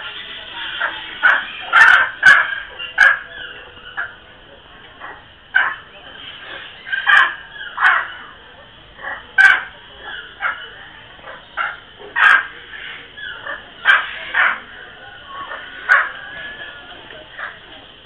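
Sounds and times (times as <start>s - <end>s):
macaws squawking: 0.0s - 17.9s.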